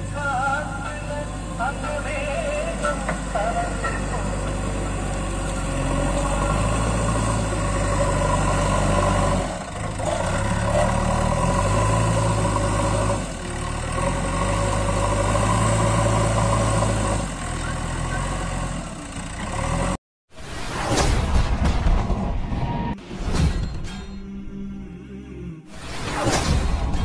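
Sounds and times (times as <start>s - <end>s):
diesel engine under hydraulic load: 0.0s - 21.2s.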